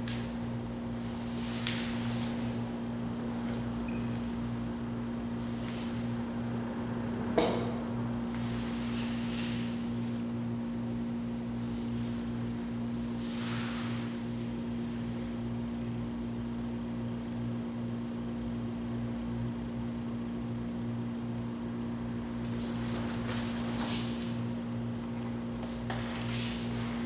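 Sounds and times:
low hum with throb: 0.0s - 27.0s.

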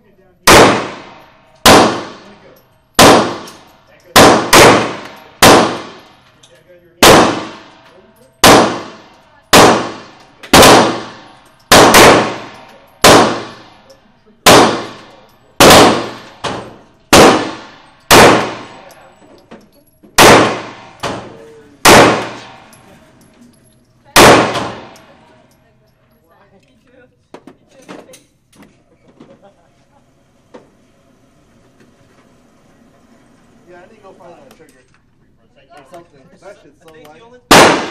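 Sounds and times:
pistol shots indoors: 0.4s - 6.2s, 7.0s - 19.0s, 20.2s - 22.9s, 24.1s - 25.3s, 37.5s - 37.9s.

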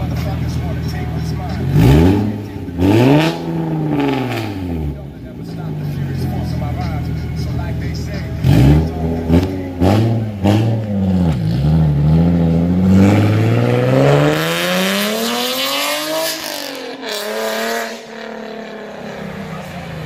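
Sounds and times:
car accelerating away: 0.0s - 20.0s
car engine revving: 0.0s - 20.0s.

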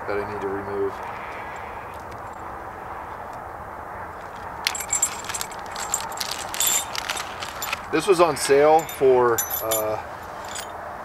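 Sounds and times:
steady background noise: 0.0s - 11.0s
plastic bag crinkling: 4.3s - 8.6s.

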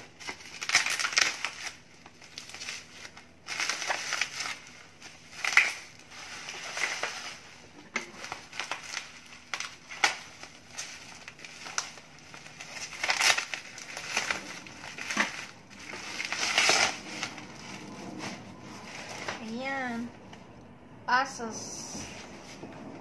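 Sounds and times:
bubble wrap crinkling: 0.0s - 20.5s.

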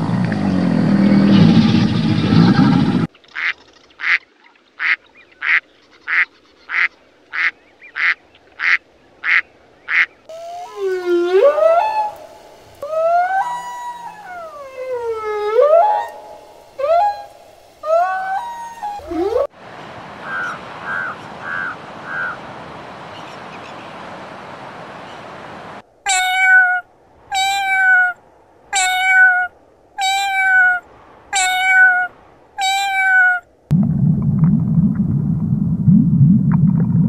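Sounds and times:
duck quacking: 4.8s - 10.1s
whale singing: 10.3s - 19.5s, 26.1s - 28.2s.

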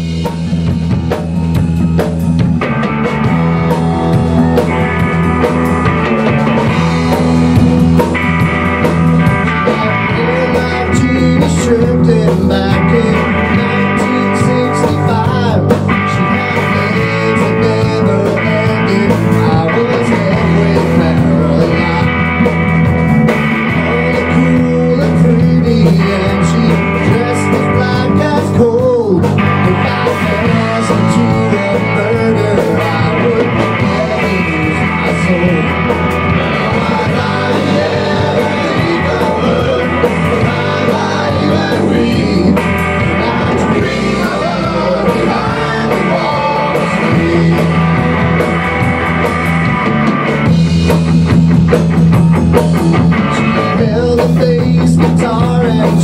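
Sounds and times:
live rock band: 0.0s - 56.0s.

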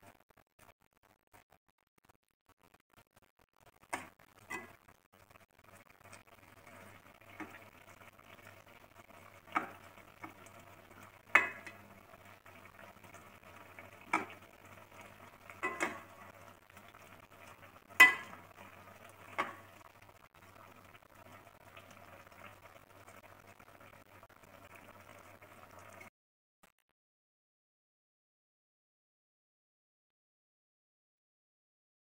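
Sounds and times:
ladle knocking against pot: 15.6s - 16.1s.

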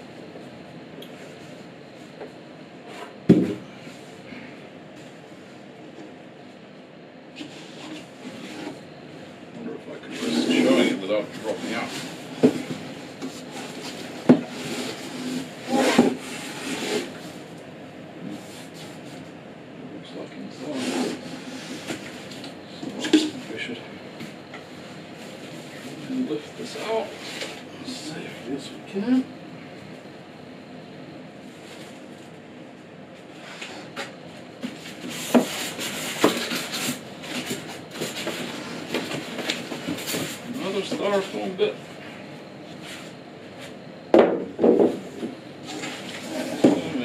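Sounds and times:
cardboard rustling and scraping: 10.0s - 17.4s, 34.6s - 41.5s, 44.6s - 47.0s.

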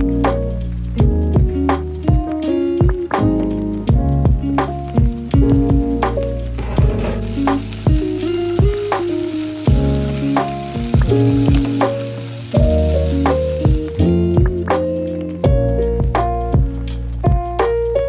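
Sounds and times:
background music: 0.0s - 18.0s
potatoes sizzling in oil: 3.8s - 14.4s.

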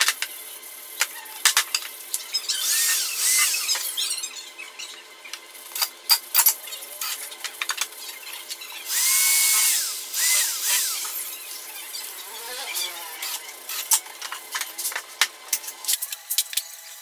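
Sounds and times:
electric drill running: 2.3s - 4.2s, 8.8s - 14.7s.

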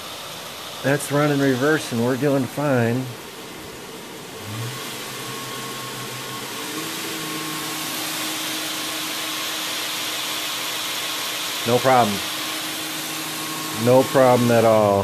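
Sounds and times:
belt grinder motor running: 0.0s - 15.0s
sanding belt hissing: 0.0s - 15.0s.

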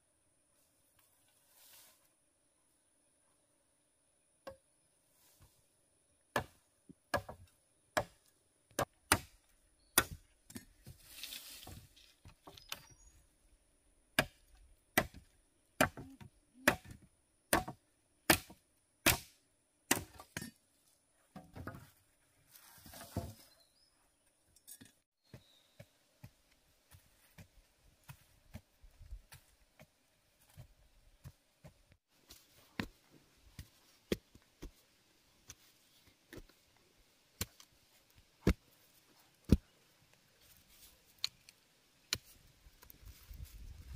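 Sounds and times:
blade chopping wood: 8.0s - 9.4s, 10.0s - 10.7s, 14.2s - 20.5s, 38.4s - 38.6s.

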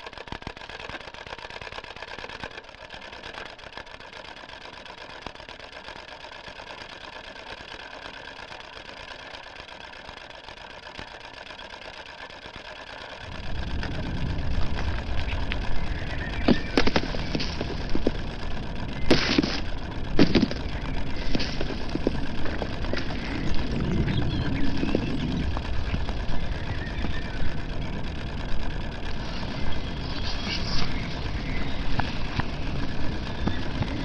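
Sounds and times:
film projector clattering: 0.0s - 34.0s
deep loud noise: 13.2s - 34.0s.

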